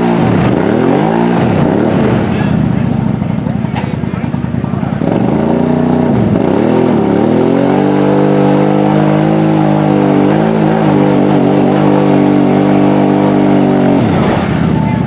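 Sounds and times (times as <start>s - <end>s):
atv engine at high revs: 0.0s - 15.0s.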